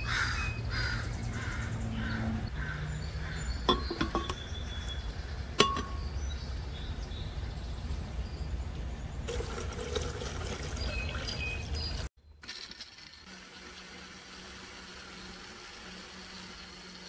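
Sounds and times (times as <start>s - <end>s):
water pouring into blender jar: 9.3s - 17.0s.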